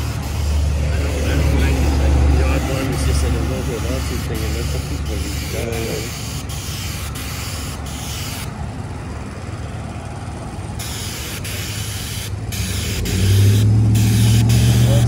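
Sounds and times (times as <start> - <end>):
spray wand hissing: 0.0 - 8.5, 10.8 - 15.0.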